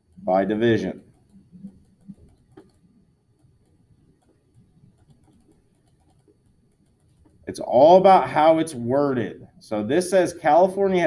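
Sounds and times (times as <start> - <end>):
stylus tapping on touchscreen: 1.0 - 7.5.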